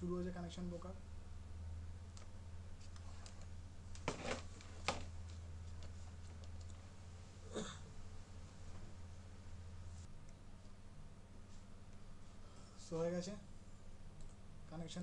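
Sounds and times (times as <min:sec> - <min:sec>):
low electrical hum: 0:00.0 - 0:15.0
computer mouse clicks: 0:14.2 - 0:14.4.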